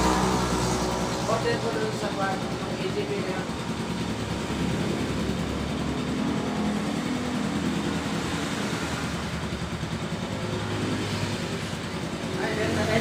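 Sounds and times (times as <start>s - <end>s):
noise wash: 0.0s - 9.2s
motorcycle engine running: 0.0s - 13.0s.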